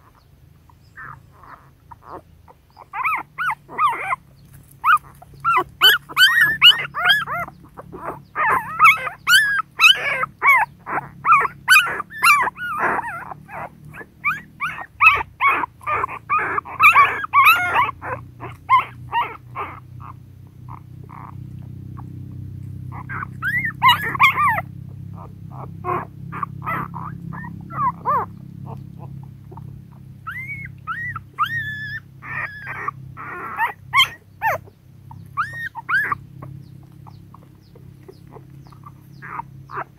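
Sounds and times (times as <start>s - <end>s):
low steady hum: 0.0s - 39.9s
puppies squeaking and whimpering: 0.0s - 39.9s.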